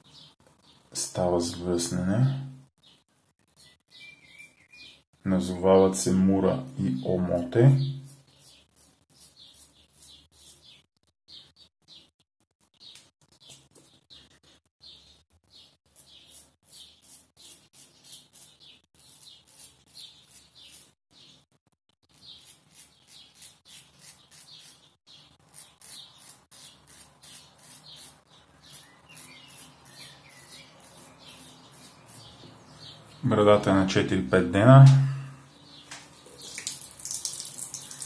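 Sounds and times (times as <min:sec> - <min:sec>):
razor scraping beard stubble: 0:07.8 - 0:10.8, 0:15.5 - 0:21.0, 0:22.0 - 0:33.0, 0:36.2 - 0:38.0.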